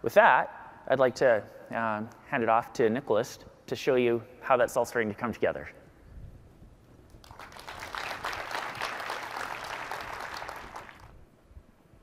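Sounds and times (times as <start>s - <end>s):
audience applauding: 7.2s - 11.1s.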